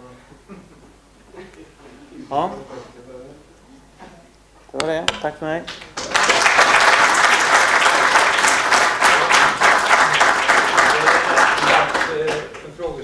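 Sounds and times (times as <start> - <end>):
audience applauding: 6.0 - 12.8.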